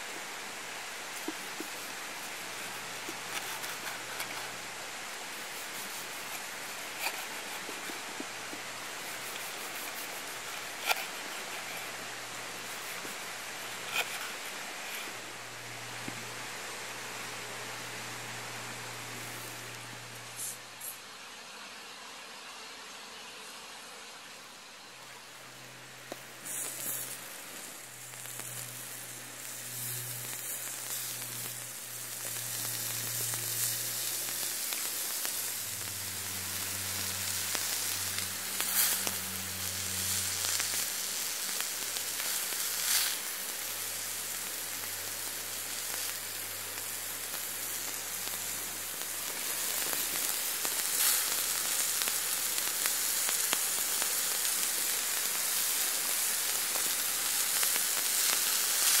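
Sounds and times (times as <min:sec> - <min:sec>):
meat sizzling on grill plate: 0:00.0 - 0:18.1, 0:26.1 - 0:59.0
sharp crackles: 0:26.0 - 0:59.0.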